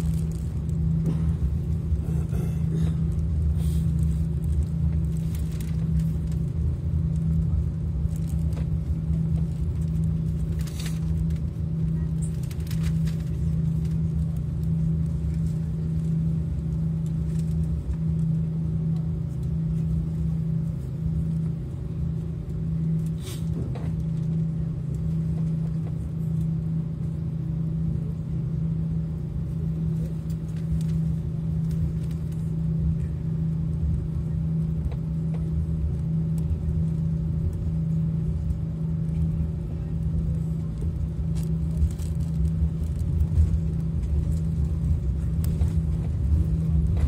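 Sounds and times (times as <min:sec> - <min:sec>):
airliner engine hum in cabin: 0:00.0 - 0:47.0
low rumble: 0:00.0 - 0:47.0.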